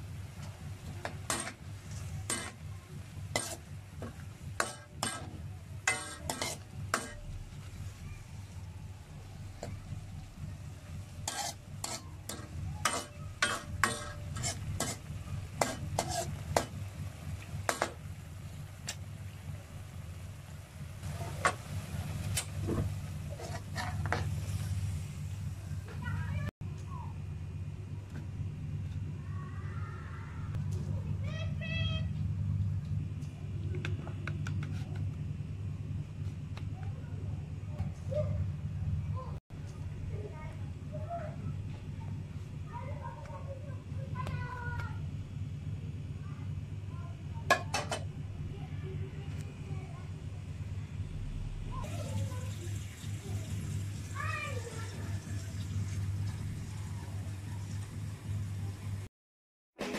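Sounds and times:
steady low hum: 0:00.0 - 0:59.1
metal ladle scraping a wok: 0:01.0 - 0:07.8, 0:11.0 - 0:16.8, 0:23.3 - 0:25.0.

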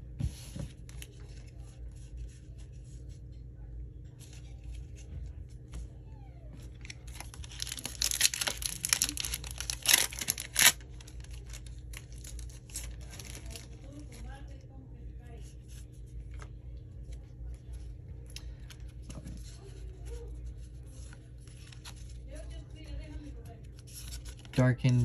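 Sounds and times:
card handling rustling: 0:06.6 - 0:14.5, 0:15.6 - 0:25.0
foil wrapper tearing and crinkling: 0:06.8 - 0:14.1.

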